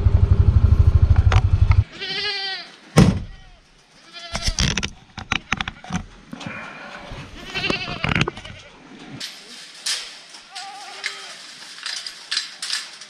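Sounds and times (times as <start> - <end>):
goat bleating: 1.8 - 4.6, 7.1 - 8.8.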